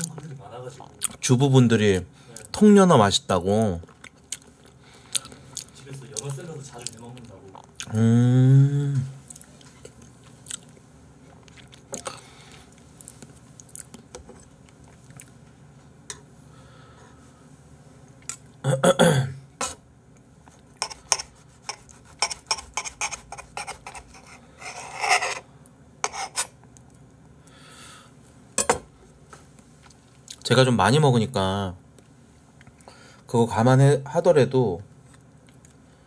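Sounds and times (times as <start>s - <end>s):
chewing: 3.8s - 7.9s, 9.2s - 15.4s
short vocal sound: 7.8s - 9.2s
cutlery scraping a plate: 20.8s - 25.4s, 26.0s - 26.6s.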